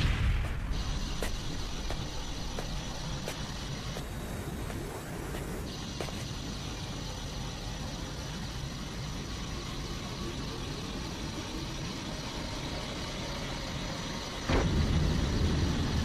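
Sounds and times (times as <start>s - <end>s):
sudden loud blast: 0.0s - 1.2s, 14.5s - 16.0s
faint high whine: 0.0s - 16.0s.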